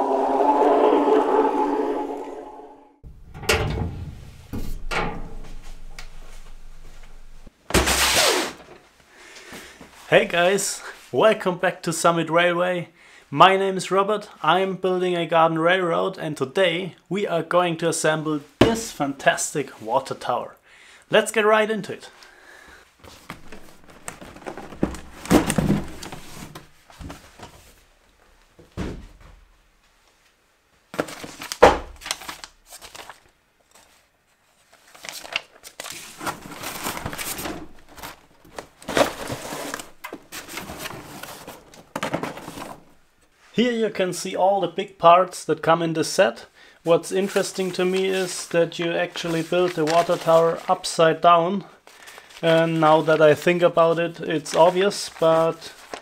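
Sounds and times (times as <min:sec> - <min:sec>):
cardboard box scraping and rustling: 0:38.8 - 0:42.8.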